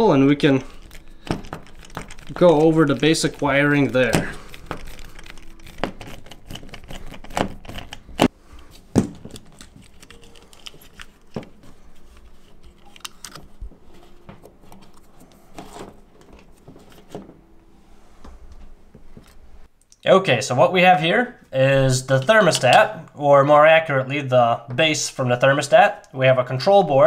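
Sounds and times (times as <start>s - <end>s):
plastic clicks and scraping: 0.7s - 8.3s, 9.2s - 17.3s.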